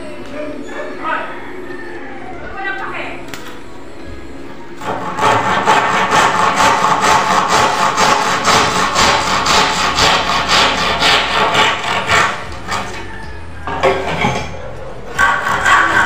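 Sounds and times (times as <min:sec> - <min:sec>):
handsaw cutting wood: 0:04.8 - 0:13.1, 0:15.1 - 0:16.0.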